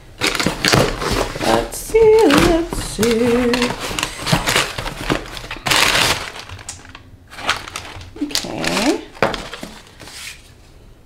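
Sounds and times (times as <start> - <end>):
cardboard tearing and crackling: 0.1 - 10.2
voice humming: 1.4 - 4.0.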